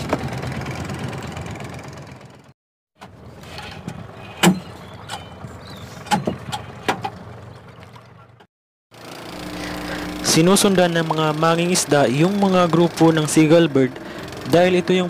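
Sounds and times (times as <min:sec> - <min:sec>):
boat engine running: 0:00.0 - 0:15.0
knocks and thuds in wooden boat: 0:03.8 - 0:08.4.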